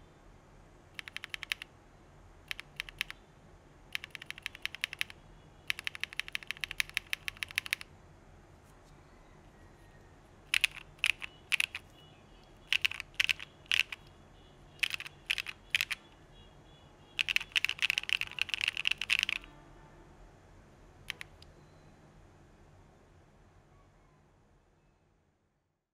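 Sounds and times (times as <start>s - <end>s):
mechanical keyboard typing: 1.0s - 1.7s, 2.5s - 3.2s, 3.9s - 7.9s, 10.5s - 11.9s, 12.6s - 14.1s, 14.8s - 16.1s, 17.2s - 19.5s, 21.1s - 21.5s.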